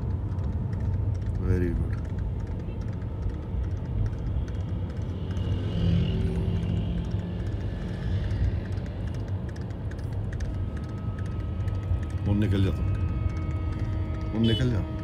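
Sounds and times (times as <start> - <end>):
traffic rumble and road noise: 0.0 - 15.0
motorcycle engine passing: 4.5 - 11.9.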